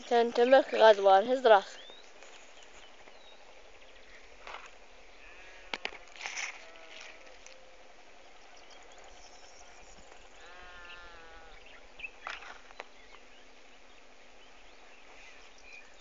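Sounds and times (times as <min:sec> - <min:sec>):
low outdoor background: 0:00.0 - 0:16.0
faint animal call: 0:05.2 - 0:07.6, 0:10.4 - 0:11.7.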